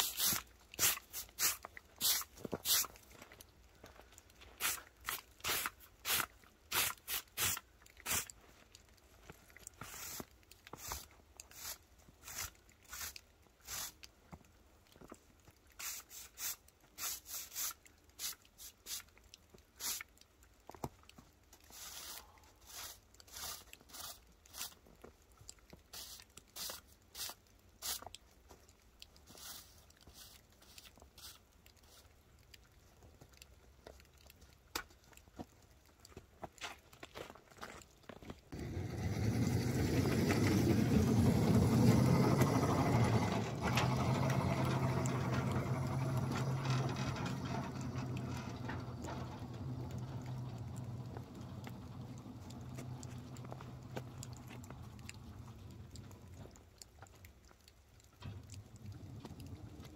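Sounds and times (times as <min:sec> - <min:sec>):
broom sweeping wet snow: 0:00.0 - 0:03.1, 0:04.6 - 0:08.4, 0:09.6 - 0:14.1, 0:15.7 - 0:19.2, 0:19.8 - 0:20.2, 0:21.6 - 0:24.8, 0:25.8 - 0:28.2, 0:29.2 - 0:32.2, 0:38.6 - 0:48.4.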